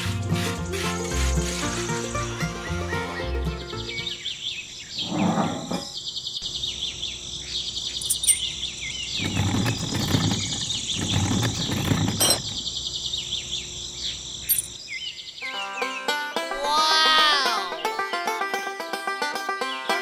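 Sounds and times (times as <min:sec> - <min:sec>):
insects chirping and trilling: 0:00.5 - 0:03.0, 0:03.8 - 0:15.5
bird chirps: 0:01.8 - 0:09.2, 0:12.4 - 0:16.1.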